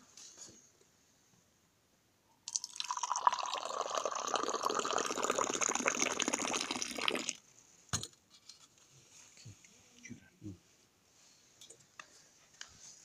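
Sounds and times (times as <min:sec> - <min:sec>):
tea pouring into a glass: 0:02.5 - 0:07.4.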